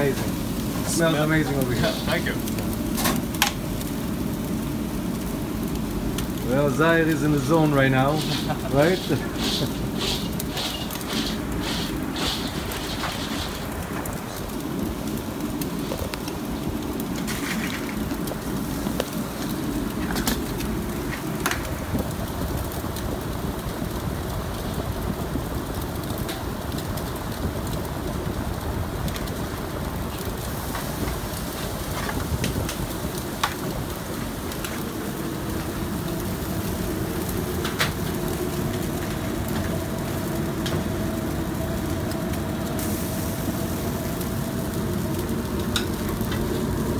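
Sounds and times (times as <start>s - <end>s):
kitchen equipment rumble: 0.0s - 3.8s, 6.3s - 14.6s, 17.0s - 22.0s.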